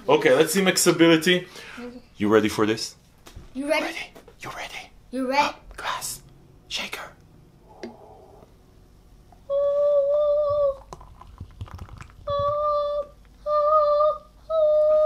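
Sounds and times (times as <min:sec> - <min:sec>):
person humming: 0:07.6 - 0:08.5, 0:09.4 - 0:11.0, 0:12.2 - 0:15.0
shake pouring into a glass: 0:10.8 - 0:12.3.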